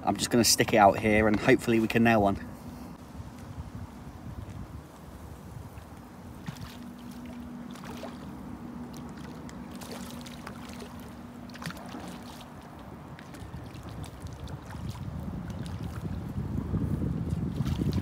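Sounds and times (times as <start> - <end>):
wind on microphone: 2.4 - 18.0
fish splashing in water: 5.8 - 16.2.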